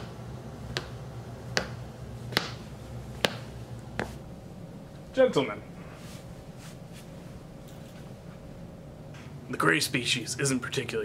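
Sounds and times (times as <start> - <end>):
footsteps clicking: 0.0 - 4.2
low steady hum: 0.0 - 11.0.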